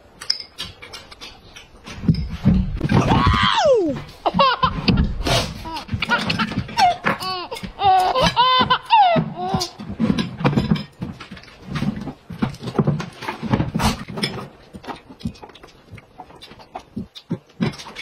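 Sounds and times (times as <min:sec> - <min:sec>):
person chewing: 0:13.8 - 0:18.0.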